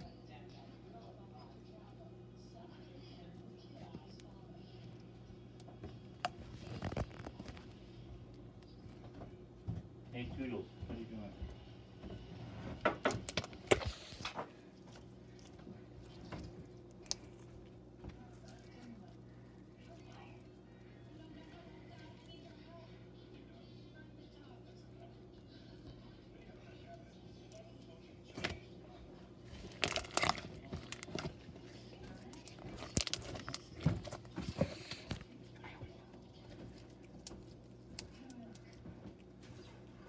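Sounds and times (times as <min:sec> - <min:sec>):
wet crackles and pops: 0:29.6 - 0:31.4, 0:32.3 - 0:33.7
slime squished by hand: 0:29.6 - 0:35.3.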